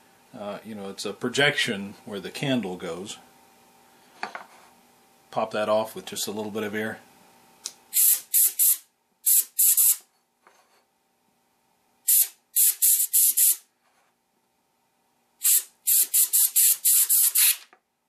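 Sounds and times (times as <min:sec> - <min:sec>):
compressed air blow gun hissing: 0:12.1 - 0:13.6, 0:15.4 - 0:17.6.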